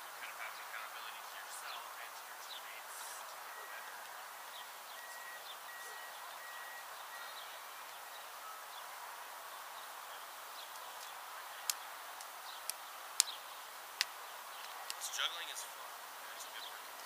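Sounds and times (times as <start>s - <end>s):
steady outdoor hiss: 0.0s - 17.0s
faint high chirp: 2.5s - 9.0s
sharp taps: 14.0s - 15.1s.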